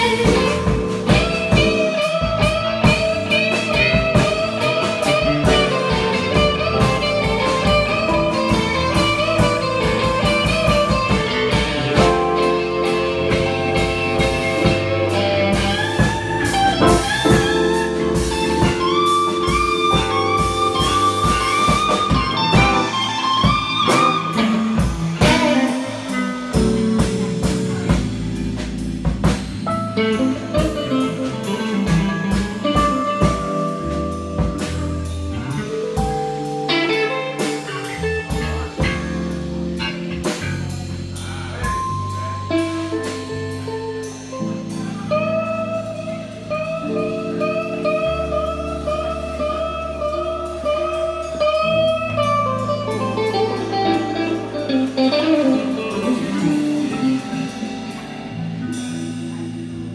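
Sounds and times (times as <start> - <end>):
bass: 0.0 - 59.9
drums: 0.0 - 59.9
electric guitar lead lines: 0.0 - 59.9.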